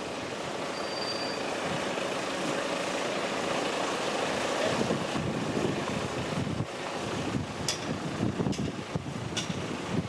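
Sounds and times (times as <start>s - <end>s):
diesel engine idling: 0.0s - 10.0s
wind buffeting microphone: 4.7s - 10.0s.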